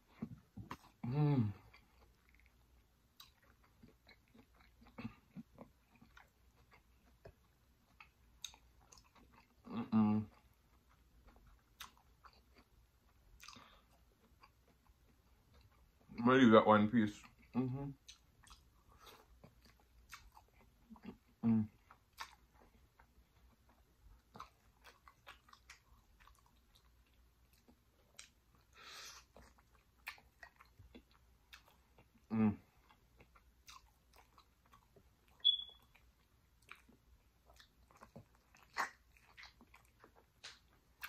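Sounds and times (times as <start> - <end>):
wet chewing with mouth clicks: 0.0 - 16.2, 17.1 - 41.0
short high squeak: 35.4 - 35.8.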